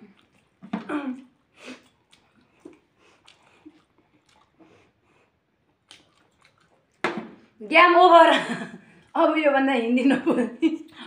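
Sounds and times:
chewing and eating by hand: 0.0s - 7.6s, 8.7s - 9.3s.

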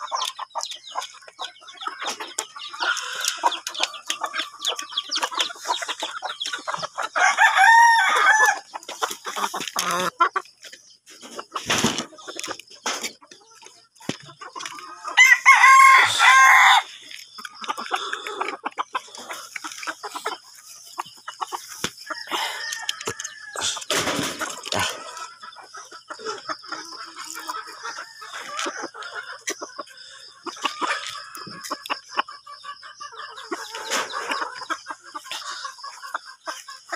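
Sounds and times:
chickens clucking softly: 0.0s - 36.9s
rooster crowing: 7.2s - 8.7s, 15.2s - 16.9s, 22.2s - 23.9s.

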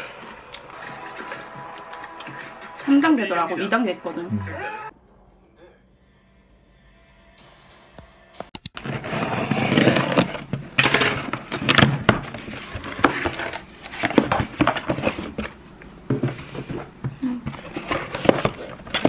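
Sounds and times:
cardboard scraping and rustling: 8.8s - 17.0s, 17.6s - 19.0s.

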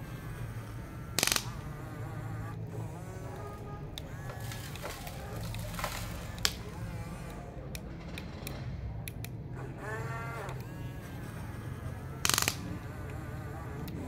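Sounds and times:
motor whine rising and falling: 0.0s - 7.7s
electric motor hum: 0.0s - 14.0s
clicks: 1.1s - 9.4s, 12.2s - 14.0s
gravel crunch: 2.8s - 8.4s.

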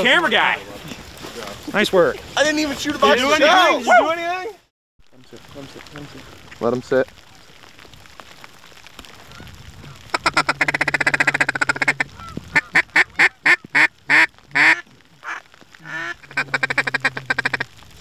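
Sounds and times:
duck call quacks: 10.1s - 17.7s
duck call feed chatter: 10.2s - 17.6s.

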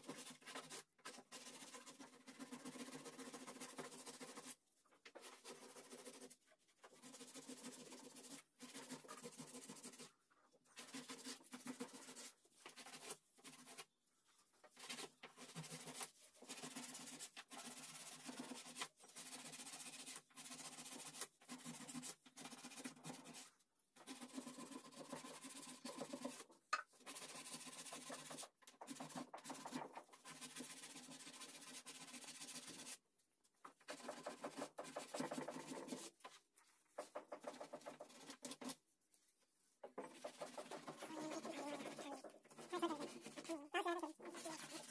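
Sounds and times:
brush scrubbing wood: 0.0s - 4.6s, 5.2s - 10.1s, 10.8s - 13.8s, 27.0s - 33.0s, 40.1s - 44.9s.

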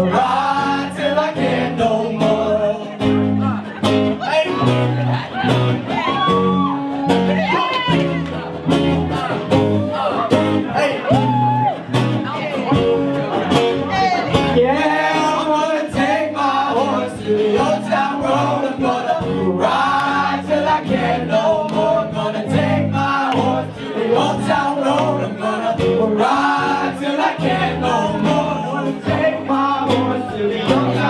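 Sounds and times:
crowd singing along: 0.0s - 7.8s, 8.4s - 31.0s
live band music: 0.0s - 31.0s.

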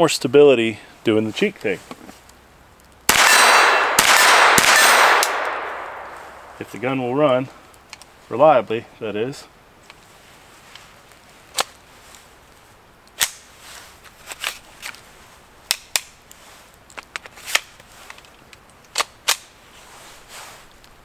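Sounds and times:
pistol shots: 3.1s - 6.6s.

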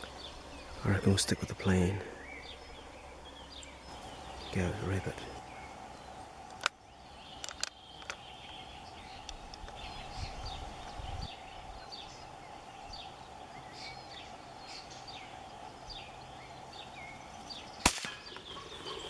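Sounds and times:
small birds chirping: 0.0s - 19.0s
rifle shot: 17.8s - 18.4s.

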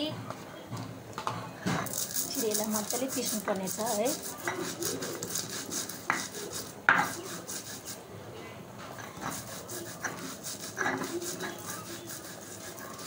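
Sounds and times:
stone grinding wet paste: 1.7s - 8.0s, 9.0s - 13.0s
stone knocks: 6.9s - 7.2s.

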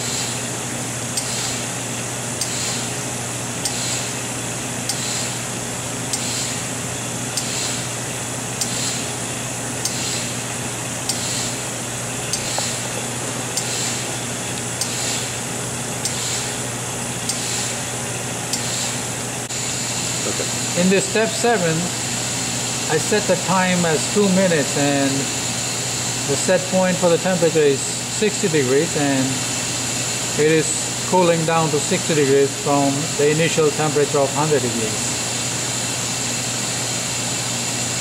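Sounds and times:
oven humming and hissing: 0.0s - 38.0s
click and burst of hiss: 11.1s - 11.6s, 12.3s - 12.8s.

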